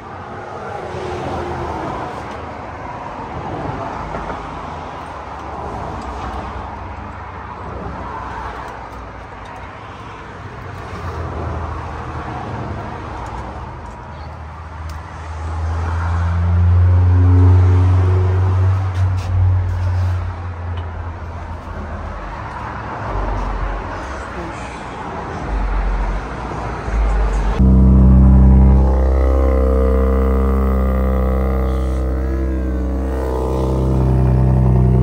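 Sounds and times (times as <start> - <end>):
traffic noise: 0.0 - 35.0
vehicle engine droning: 14.9 - 35.0.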